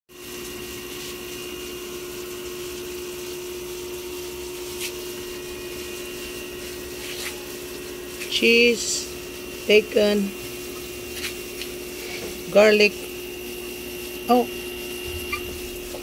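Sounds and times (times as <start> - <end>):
motor hum with hiss: 0.1 - 16.0
held tone: 14.3 - 16.0.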